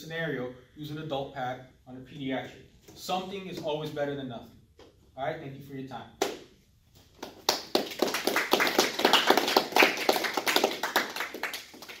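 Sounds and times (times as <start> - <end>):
group clapping: 7.1 - 12.0.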